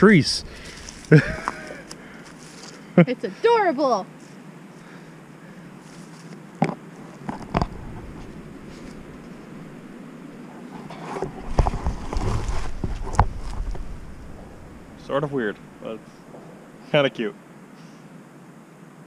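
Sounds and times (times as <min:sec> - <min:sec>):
wind rumble on microphone: 0:00.0 - 0:02.3, 0:07.3 - 0:16.6.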